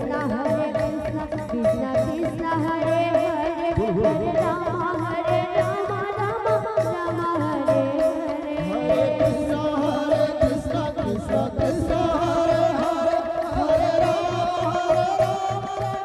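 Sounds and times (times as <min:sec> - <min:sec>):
devotional singing through microphones: 0:00.0 - 0:16.0
instrumental accompaniment: 0:00.0 - 0:16.0.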